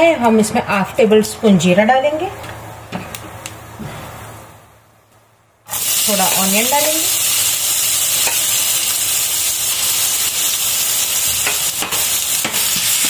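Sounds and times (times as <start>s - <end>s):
onion sizzling in oil: 5.7s - 13.0s.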